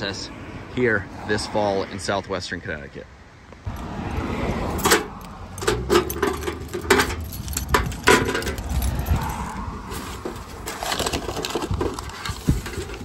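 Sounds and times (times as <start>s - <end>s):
keys jangling on a ring: 6.0s - 9.5s.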